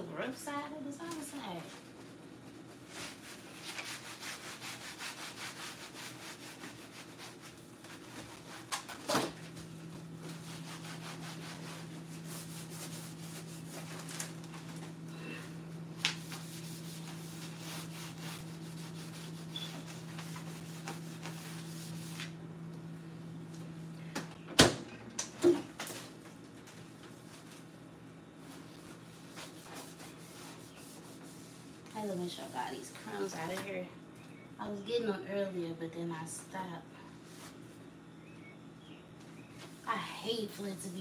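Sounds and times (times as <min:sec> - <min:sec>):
steady low hum: 0:00.0 - 0:41.0
cloth wiping refrigerator door: 0:01.1 - 0:22.3, 0:28.4 - 0:33.5.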